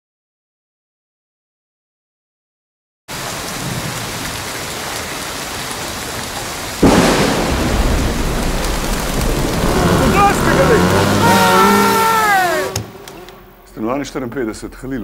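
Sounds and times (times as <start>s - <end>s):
steady rain: 3.1s - 13.7s
thunder clap: 6.8s - 13.1s.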